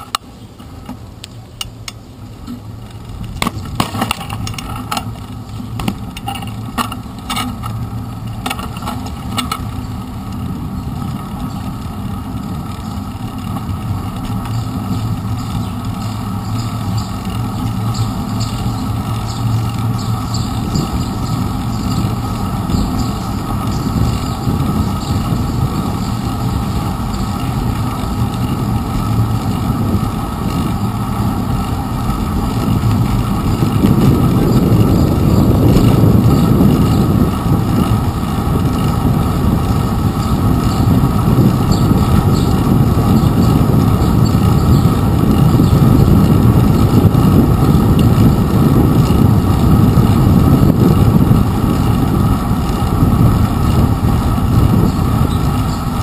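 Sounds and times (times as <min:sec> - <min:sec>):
bicycle knocks and rattles: 0:00.0 - 0:56.0
rumble of tyres on pavement: 0:00.0 - 0:56.0
wind noise: 0:00.0 - 0:56.0.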